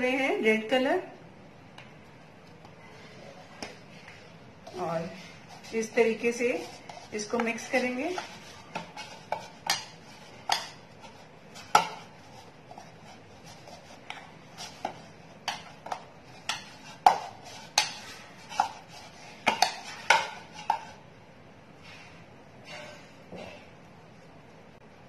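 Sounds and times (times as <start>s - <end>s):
dough knocking against bowl: 11.6s - 12.2s.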